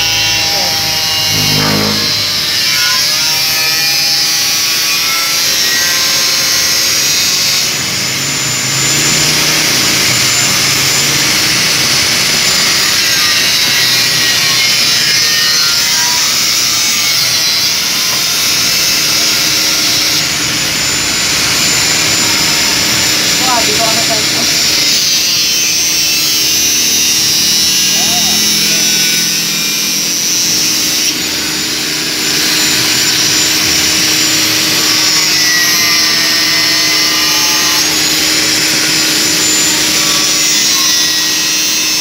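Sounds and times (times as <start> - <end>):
angle grinder cutting steel: 0.0 - 42.0.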